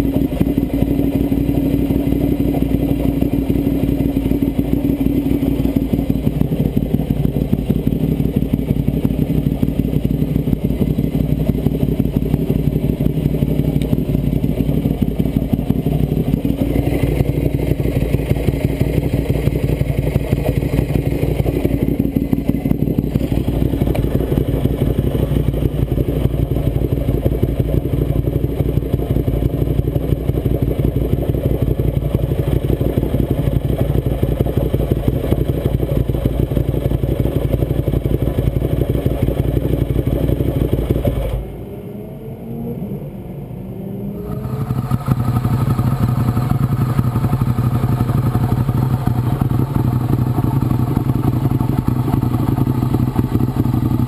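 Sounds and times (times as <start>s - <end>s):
motorcycle engine idling: 0.0s - 41.9s, 44.2s - 54.0s
metallic engine chattering: 44.2s - 54.0s.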